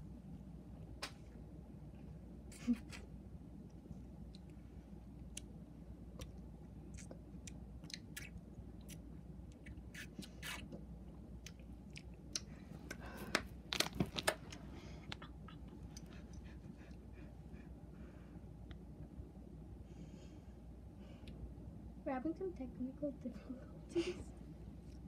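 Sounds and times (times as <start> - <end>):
chewing crunches: 6.2 - 13.0.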